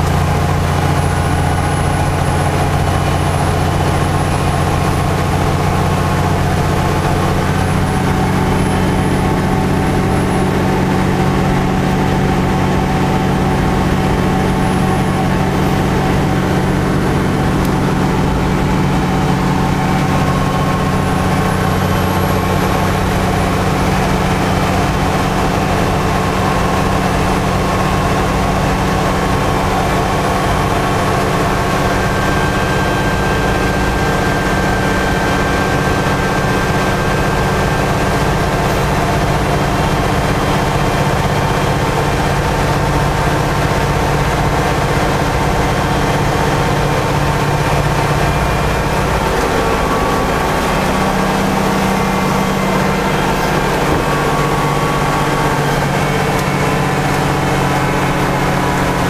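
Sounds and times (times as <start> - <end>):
bus diesel engine running: 0.0 - 59.0
road noise drone: 0.0 - 59.0.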